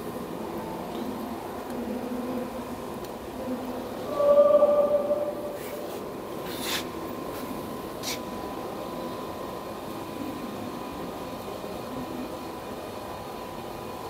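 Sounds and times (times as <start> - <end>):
workshop hum and hiss: 0.0 - 14.0
high whine: 1.5 - 10.7.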